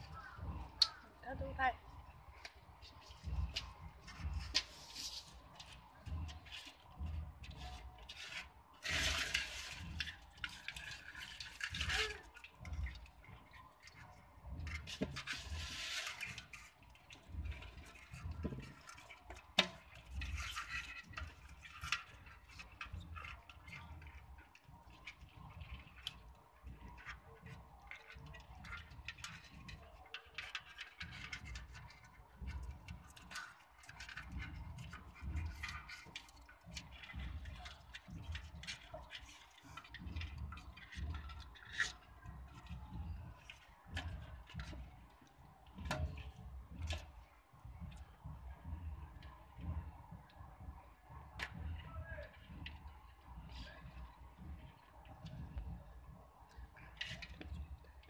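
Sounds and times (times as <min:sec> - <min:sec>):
crabs clicking and scratching: 0:00.0 - 0:58.0
crab shells scraping a basin: 0:08.2 - 0:12.4, 0:14.8 - 0:16.8.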